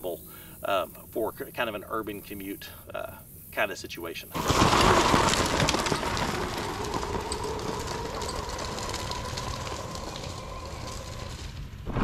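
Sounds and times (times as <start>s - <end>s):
tyres crackling on gravel: 4.2s - 12.0s.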